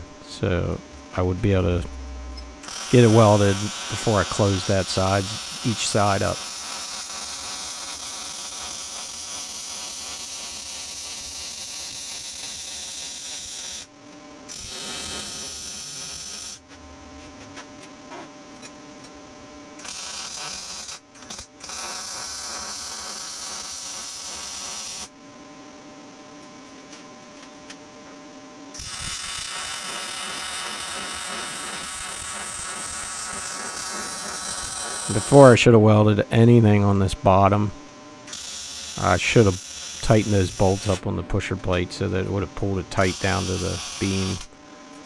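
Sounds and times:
welder humming: 0.0 - 45.0
welding arc crackling: 2.6 - 13.9, 14.5 - 16.7, 19.8 - 25.1, 28.8 - 35.7, 38.3 - 44.6.

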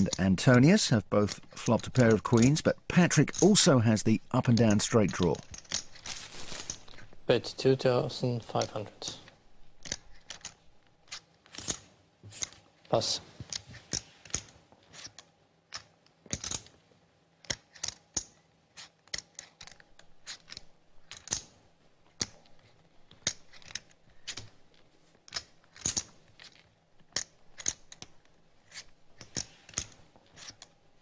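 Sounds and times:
poker chips clicking together: 17.4 - 21.5, 27.2 - 30.6.

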